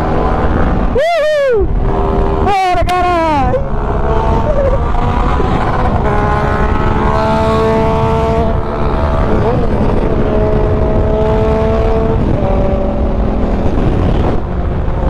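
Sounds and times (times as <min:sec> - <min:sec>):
wind rush on microphone: 0:00.0 - 0:15.0
motorcycle engine at high revs: 0:03.6 - 0:15.0.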